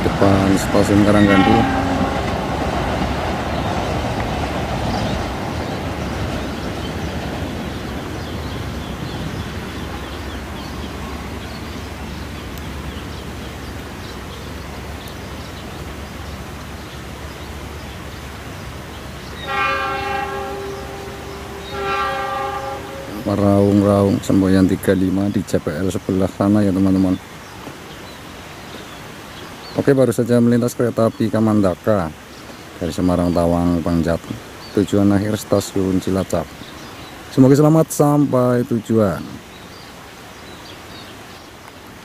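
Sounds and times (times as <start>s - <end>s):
train wheels on rails: 0.0s - 11.5s
locomotive horn blasts: 1.0s - 2.6s, 19.4s - 23.9s.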